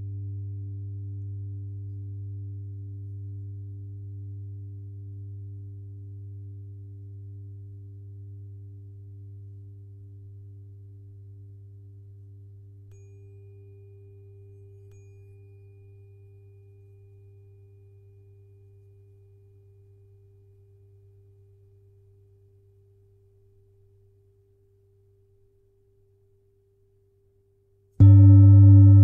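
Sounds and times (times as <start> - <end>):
tuning fork ringing: 12.8 - 22.2, 28.0 - 29.0.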